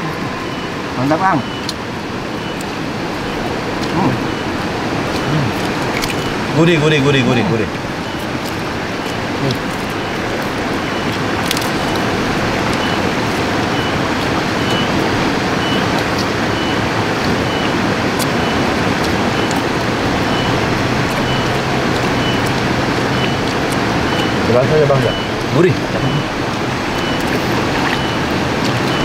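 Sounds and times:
river water rushing over rocks: 0.0 - 29.0.

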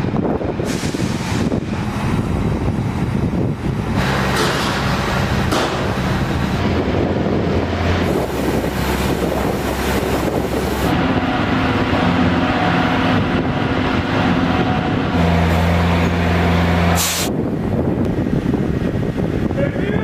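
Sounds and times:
machinery drone: 0.4 - 19.5
rushing hiss: 17.0 - 17.3.

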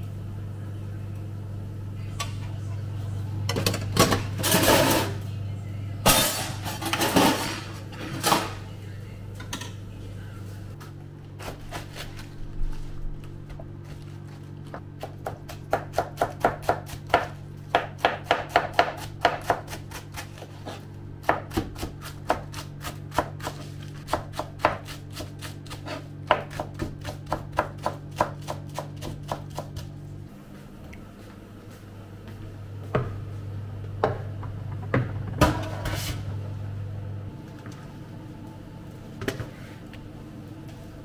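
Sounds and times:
knife chopping on cutting board: 15.0 - 29.9.

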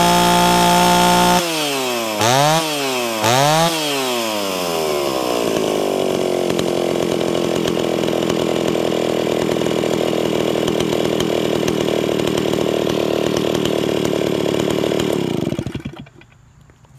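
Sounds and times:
chainsaw engine idling: 0.0 - 16.9.

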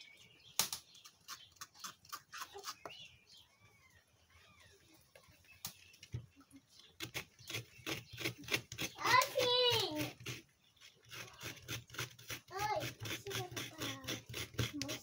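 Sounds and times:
faint chirping animal calls: 1.2 - 9.2.

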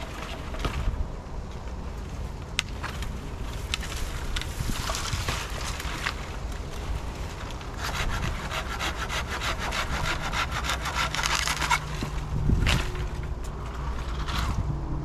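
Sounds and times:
rapid rasping scrapes: 7.7 - 13.2
low rumble: 11.5 - 15.0.

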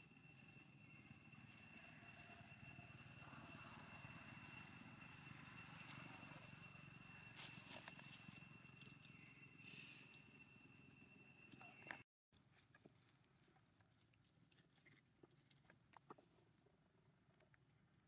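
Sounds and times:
high-pitched whine: 0.0 - 12.0.

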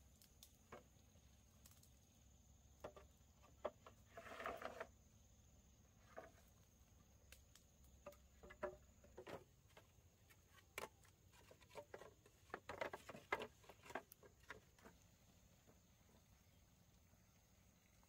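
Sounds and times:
bamboo poles knocking: 2.8 - 4.0, 8.0 - 15.0.

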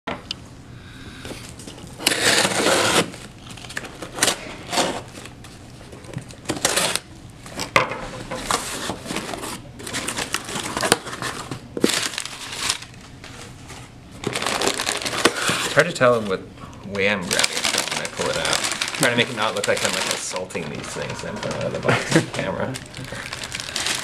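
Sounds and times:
packing tape ripping off cardboard: 2.0 - 5.4, 6.2 - 7.1, 8.5 - 13.0, 14.2 - 15.9, 17.3 - 24.0.

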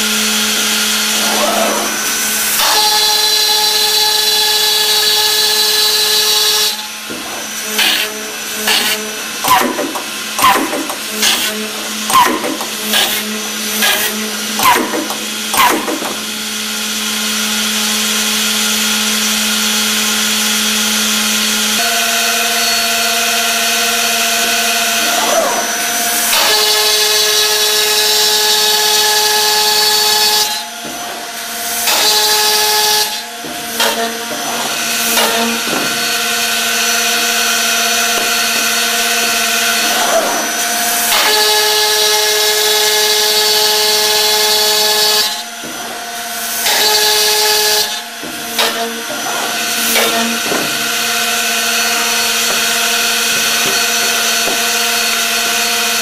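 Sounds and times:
machine drill strokes: 0.0 - 17.1, 18.9 - 56.0
high spindle whine: 19.0 - 41.7.

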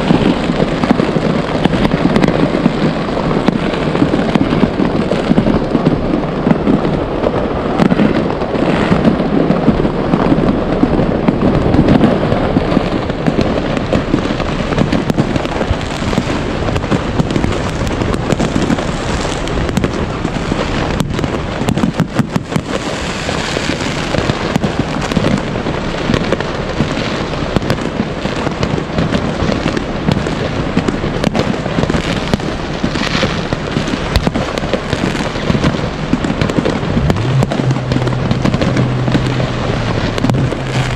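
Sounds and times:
fireworks bangs and crackling: 0.0 - 40.9.

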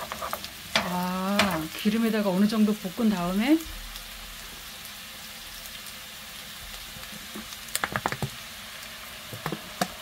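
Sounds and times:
spatula scraping pan: 0.0 - 1.7
potatoes sizzling in oil: 0.0 - 10.0.

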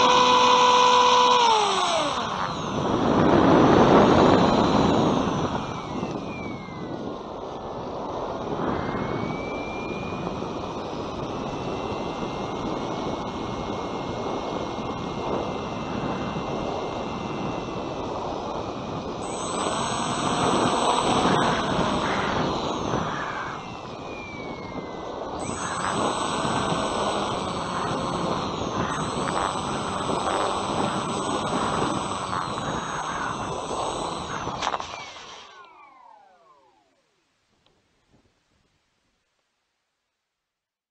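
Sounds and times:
wind rushing over microphone: 0.0 - 36.4
faint high whine: 0.0 - 40.6.

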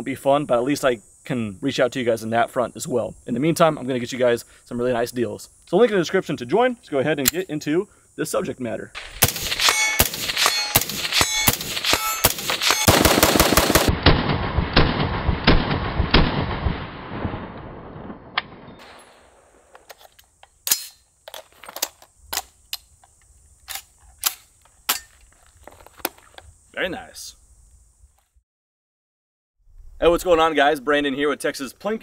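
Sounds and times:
cicadas buzzing: 0.0 - 13.9, 18.9 - 28.4
rifle firing rapidly: 9.2 - 16.6.

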